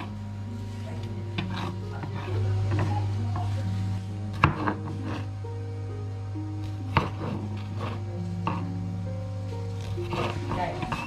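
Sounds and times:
utensils knocking on cutting board: 0:04.3 - 0:05.2, 0:06.9 - 0:08.6.

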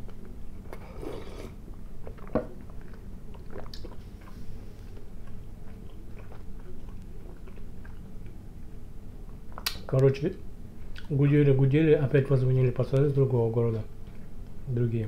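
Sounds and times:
chewing with wet clicks: 0:00.0 - 0:00.8, 0:01.7 - 0:10.2, 0:10.9 - 0:11.2
slurping sip of tea: 0:00.7 - 0:01.6.

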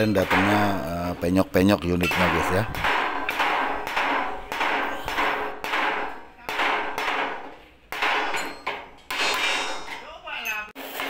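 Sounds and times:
hammer ringing on steel: 0:02.0 - 0:10.6.

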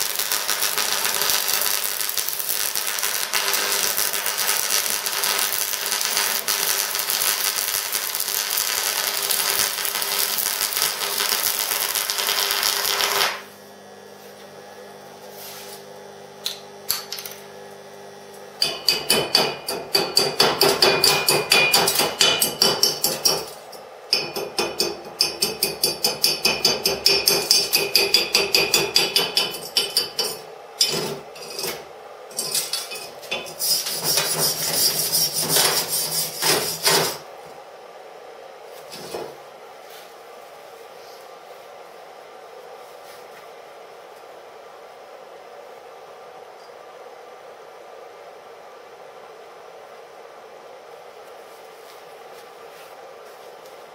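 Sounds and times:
welding arc crackling: 0:00.0 - 0:13.6
chipping hammer striking metal: 0:18.6 - 0:23.5.

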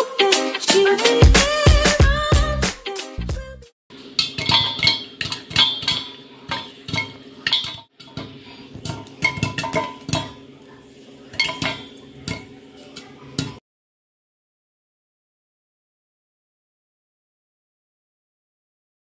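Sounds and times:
popcorn popping in a pan: 0:04.0 - 0:13.6.

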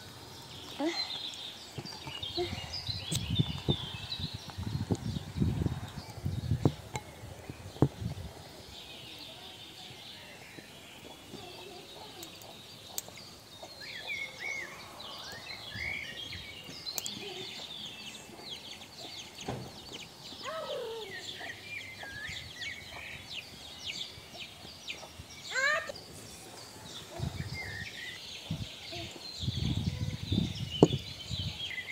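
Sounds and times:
small birds chirping: 0:00.0 - 0:31.9.

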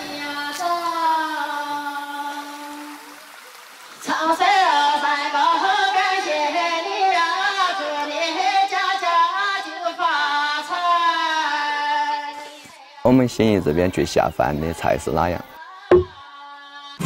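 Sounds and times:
woman singing folk song: 0:00.0 - 0:03.1, 0:04.0 - 0:13.0.

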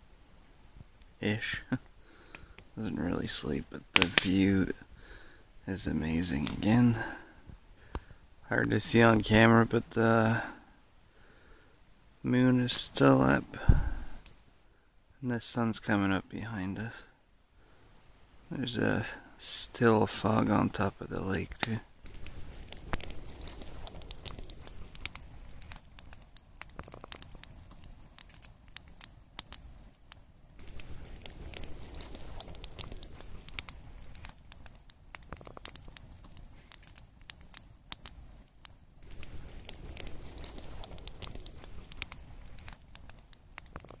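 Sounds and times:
irregular crackling clicks: 0:04.0 - 0:04.8, 0:06.3 - 0:06.8, 0:21.5 - 0:44.0
low rumble: 0:22.0 - 0:26.7, 0:39.0 - 0:43.2.

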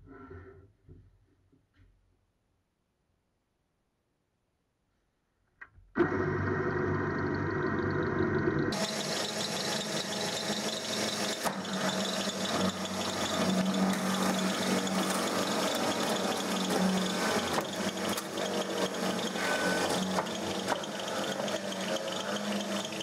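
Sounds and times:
drill press motor hum: 0:06.0 - 0:23.0
drill bit grinding through plastic: 0:08.7 - 0:23.0.

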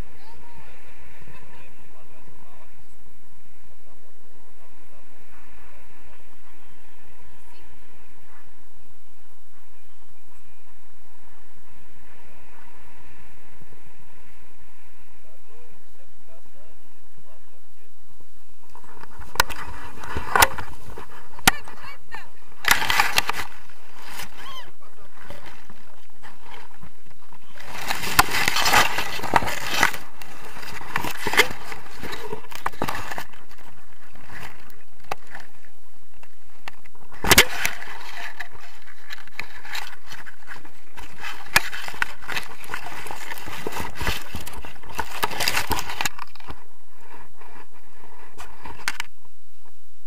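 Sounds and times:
weed stalks rustling and snapping: 0:22.6 - 0:47.6.

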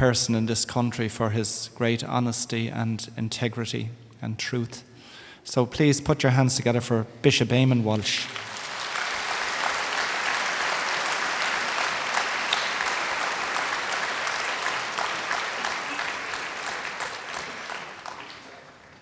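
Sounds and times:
crowd applauding: 0:08.3 - 0:19.0.

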